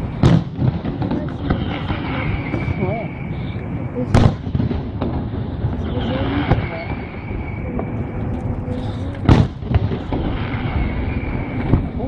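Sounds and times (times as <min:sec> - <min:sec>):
firework pops and crackles: 0:00.0 - 0:03.2, 0:04.1 - 0:12.0
firework shell bursting: 0:04.1 - 0:12.0.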